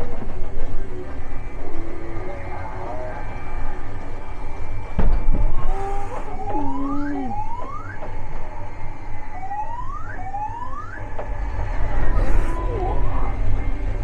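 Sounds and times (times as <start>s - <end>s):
low rumble: 0.0s - 9.2s, 11.0s - 14.0s
siren-like swoops: 0.8s - 8.1s, 9.2s - 14.0s.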